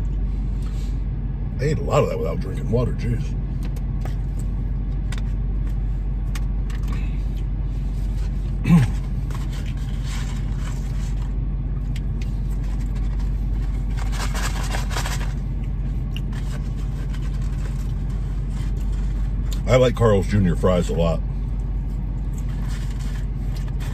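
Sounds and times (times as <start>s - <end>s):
car engine idling: 0.0s - 23.9s
person eating fries: 6.3s - 19.6s, 21.5s - 23.9s.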